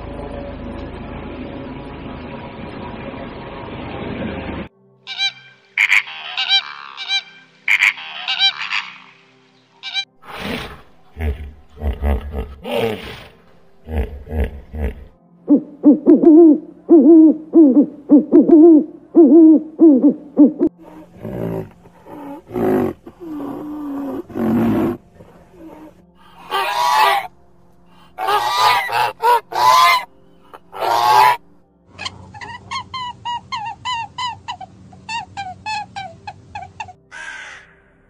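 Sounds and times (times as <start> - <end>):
goose honking: 5.1 - 9.1, 26.2 - 27.3, 28.2 - 31.4
hippopotamus grunting and honking: 20.8 - 27.3.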